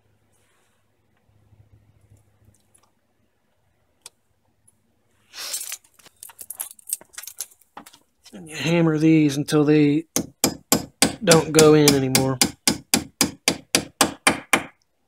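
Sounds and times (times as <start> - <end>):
metal tools clattering: 5.4 - 8.0.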